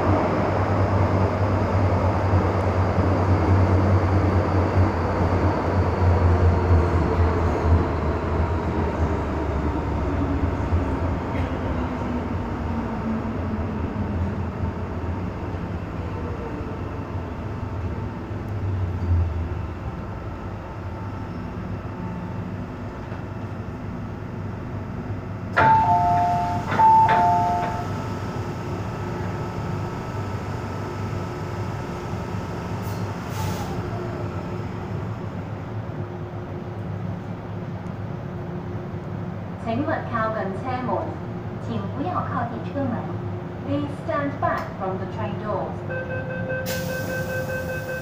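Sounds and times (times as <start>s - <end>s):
train rumble: 0.0s - 48.0s
two-note door chime: 25.6s - 27.8s.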